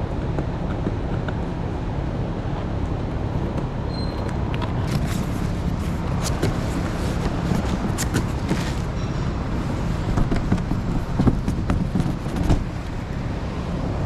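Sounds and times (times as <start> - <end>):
steady low hum: 0.0 - 14.0
cardboard box rustling and scraping: 4.8 - 13.1.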